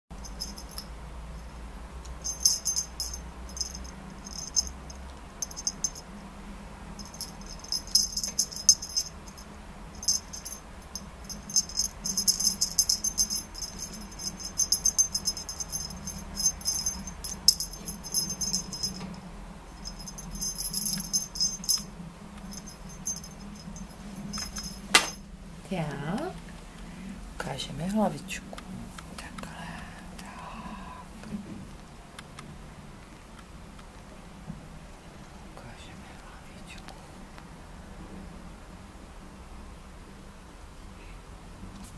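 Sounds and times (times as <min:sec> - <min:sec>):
faint steady hum: 0:00.1 - 0:41.9
small bell jingling: 0:00.2 - 0:01.5, 0:02.2 - 0:06.1, 0:07.0 - 0:19.2, 0:19.8 - 0:25.2.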